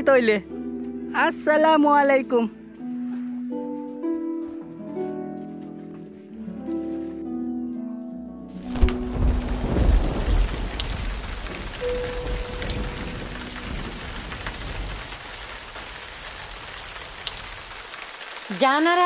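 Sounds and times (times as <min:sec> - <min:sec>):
steady rain falling: 0:08.6 - 0:19.0.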